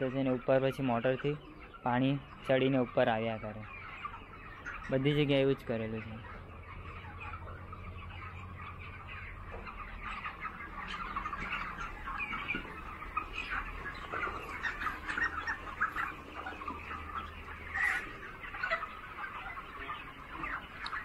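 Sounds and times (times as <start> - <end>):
chickens chirping and clucking: 0.0 - 21.0.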